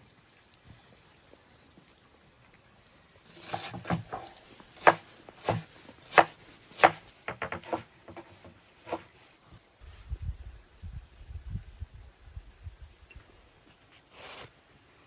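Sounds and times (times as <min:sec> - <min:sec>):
knife chopping on wooden board: 0:03.4 - 0:09.1.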